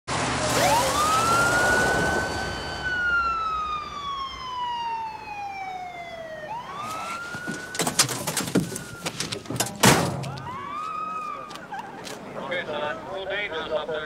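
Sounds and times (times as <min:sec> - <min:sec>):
police siren wailing: 0:00.2 - 0:09.5, 0:10.2 - 0:11.8.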